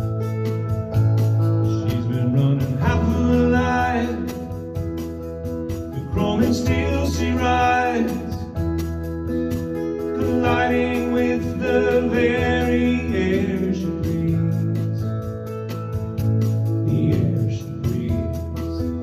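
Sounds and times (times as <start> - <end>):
strummed electric guitar: 0.0 - 19.0
man singing: 1.6 - 4.9, 5.9 - 8.7, 10.0 - 15.5, 16.6 - 19.0.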